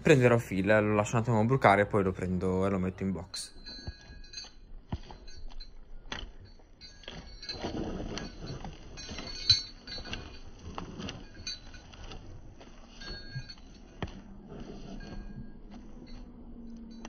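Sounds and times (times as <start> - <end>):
halter metal fittings clinking: 3.5 - 14.3.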